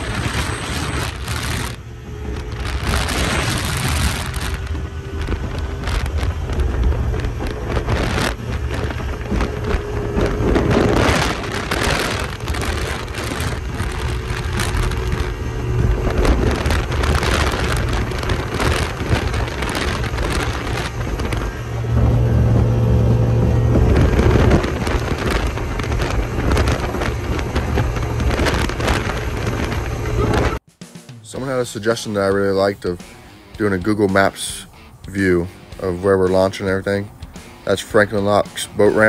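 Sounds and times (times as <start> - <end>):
boat engine drone: 0.0 - 30.6, 31.3 - 39.0
wind and water rushing: 0.0 - 30.6.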